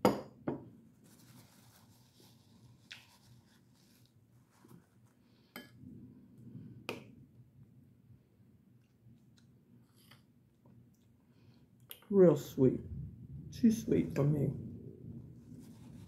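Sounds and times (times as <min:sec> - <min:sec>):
soft rubbing and handling: 0:00.9 - 0:05.4, 0:15.0 - 0:16.0.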